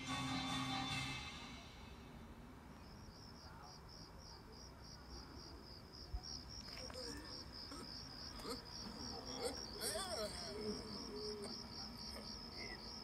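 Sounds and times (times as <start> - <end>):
cricket chirping: 2.7 - 13.0.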